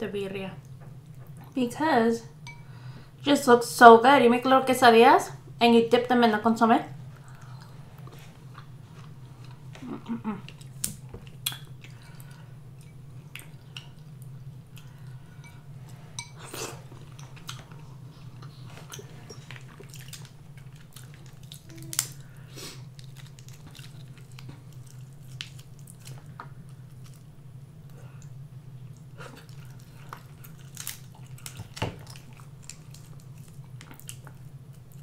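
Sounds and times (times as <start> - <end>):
steady low hum: 0.0 - 35.0
chewing and mouth noises: 7.2 - 15.2, 16.4 - 27.3, 27.9 - 35.0
crab shell cracking: 20.0 - 22.3, 30.2 - 34.4.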